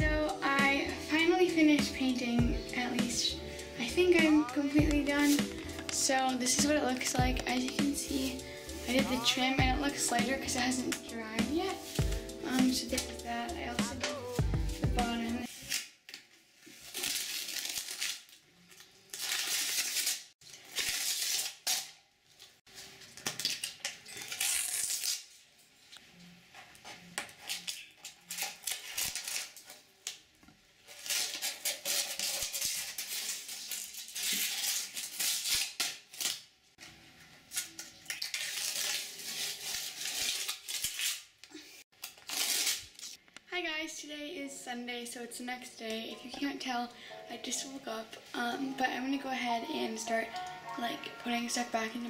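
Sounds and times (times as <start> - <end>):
tape ripping off a wooden floor: 15.5 - 25.5, 27.2 - 36.6, 37.5 - 43.2.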